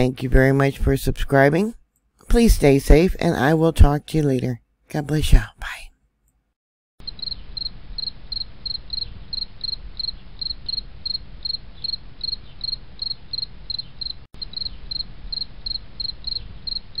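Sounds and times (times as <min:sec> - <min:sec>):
cricket chirping: 0:07.0 - 0:17.0.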